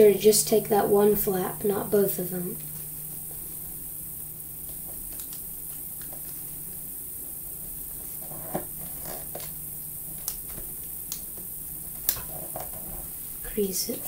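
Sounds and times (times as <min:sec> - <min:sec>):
background hiss: 0:00.0 - 0:14.0
low hum: 0:00.0 - 0:14.0.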